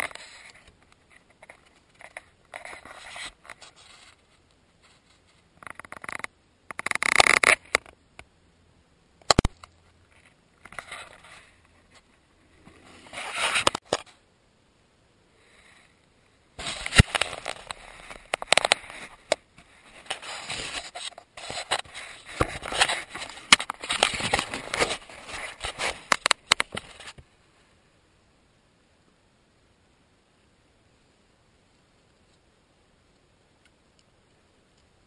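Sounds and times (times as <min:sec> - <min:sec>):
clothing scraping against microphone: 0:00.0 - 0:07.8, 0:10.1 - 0:14.2, 0:16.6 - 0:27.2
sharp clicks: 0:09.2 - 0:09.8.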